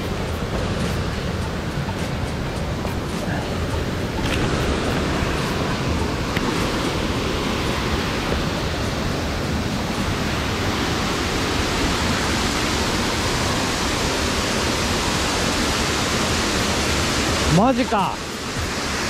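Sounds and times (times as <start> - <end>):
waterfall rushing: 0.0 - 19.0.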